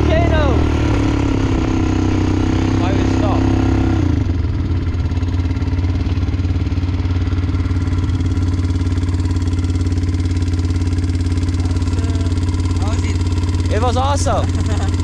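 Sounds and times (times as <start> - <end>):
atv engine running: 0.0 - 15.0.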